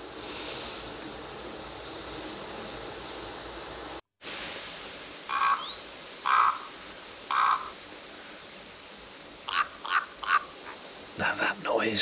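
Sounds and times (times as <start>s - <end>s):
background hiss: 0.0s - 12.0s
ravens calling: 5.3s - 8.4s, 9.4s - 11.4s.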